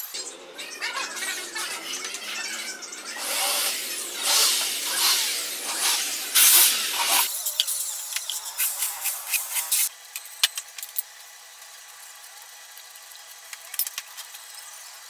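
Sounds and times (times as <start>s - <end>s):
electric drill boring into board: 3.1s - 7.3s.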